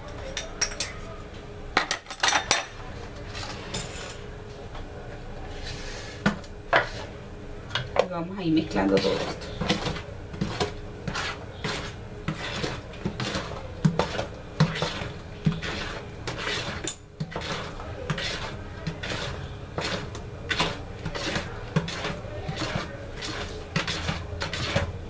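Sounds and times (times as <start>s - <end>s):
wooden spoon stirring batter: 5.5s - 7.2s, 7.8s - 25.0s.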